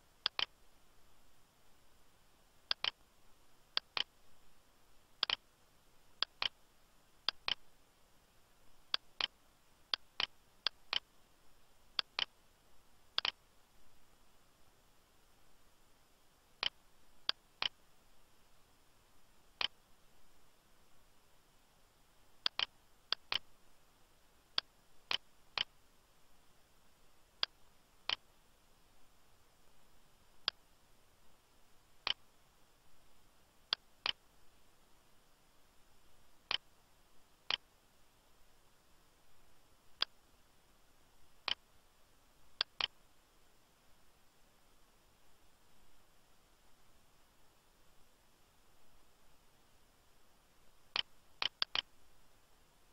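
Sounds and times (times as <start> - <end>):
faint steady hiss: 0.0 - 52.9
computer mouse clicking: 0.2 - 0.6, 2.7 - 3.0, 3.8 - 4.1, 5.2 - 5.4, 6.2 - 6.6, 7.3 - 7.6, 8.9 - 11.1, 12.0 - 12.3, 13.2 - 13.4, 22.4 - 23.5, 24.6 - 25.7, 41.4 - 41.6, 42.6 - 43.0, 50.9 - 51.9.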